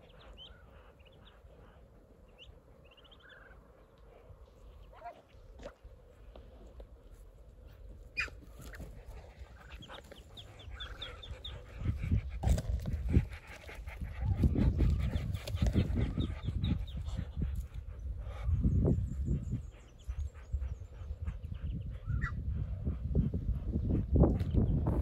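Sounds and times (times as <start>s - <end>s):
ducklings peeping: 0.0s - 4.0s, 8.1s - 22.4s
ducks huffing: 8.1s - 18.8s.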